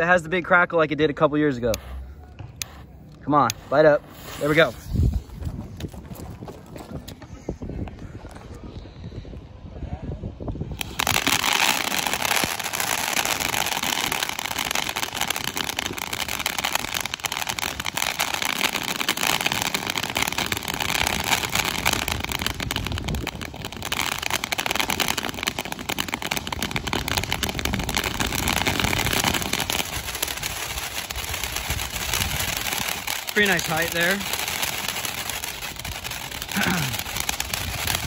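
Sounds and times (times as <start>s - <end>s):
firework fountain spraying sparks: 2.6s - 5.9s, 10.7s - 38.0s
fast crackling: 10.8s - 38.0s.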